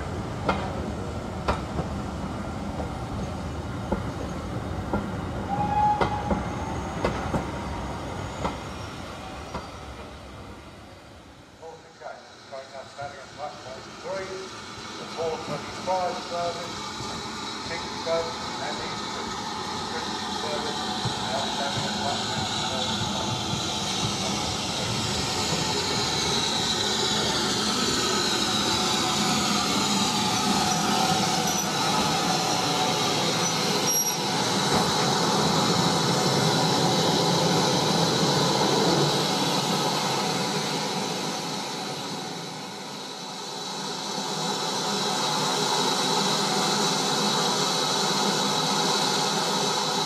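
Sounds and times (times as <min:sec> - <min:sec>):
steam train slowing: 0:00.0 - 0:50.0
wheel squeals: 0:33.4 - 0:34.3.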